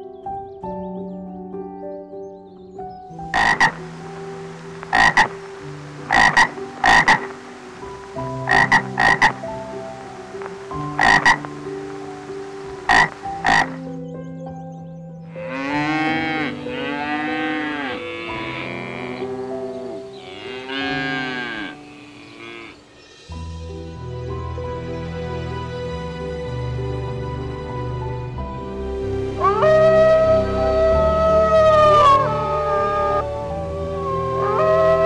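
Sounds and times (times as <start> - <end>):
frog croaking: 3.3 - 4.0, 4.8 - 7.5, 8.3 - 9.5, 10.8 - 11.7, 12.8 - 13.9, 15.3 - 23.0, 29.4 - 35.0
cow mooing: 15.3 - 22.9.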